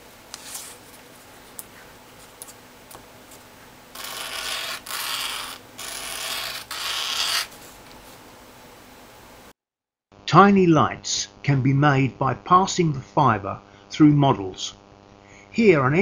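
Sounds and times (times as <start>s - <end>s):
cable rubbing on abrasive paper: 3.3s - 8.2s.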